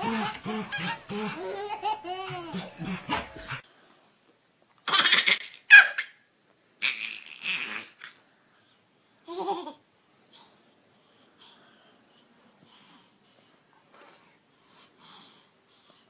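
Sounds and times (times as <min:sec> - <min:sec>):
baby giggling: 0:00.0 - 0:03.6, 0:04.9 - 0:06.2, 0:09.3 - 0:09.8.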